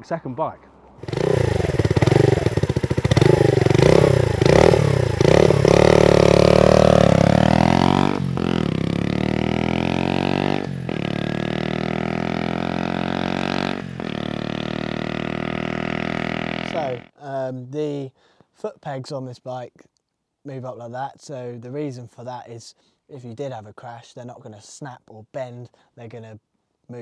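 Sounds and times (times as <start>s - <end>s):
motorcycle accelerating through gears: 1.0s - 17.1s
motorcycle engine revving: 1.0s - 17.1s.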